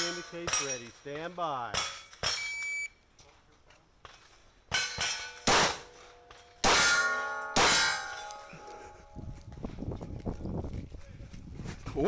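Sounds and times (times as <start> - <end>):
bullets clanging on steel plates: 0.0 - 2.7, 4.0 - 8.8
shot timer beep: 2.4 - 3.0
pistol shots: 4.7 - 8.4.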